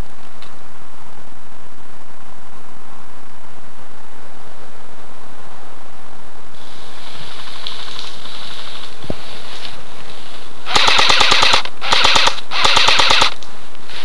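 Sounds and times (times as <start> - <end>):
airsoft rifle bursts: 10.7 - 13.4.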